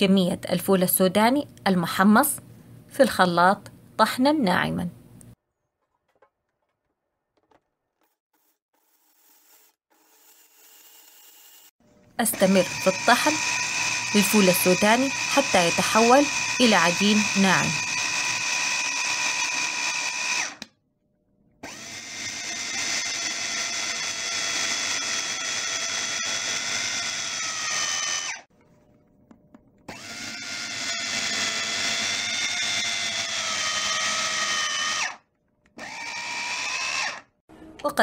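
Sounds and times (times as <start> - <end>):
electric mini chopper motor whining: 8.4 - 20.7, 21.6 - 28.5, 29.9 - 35.2.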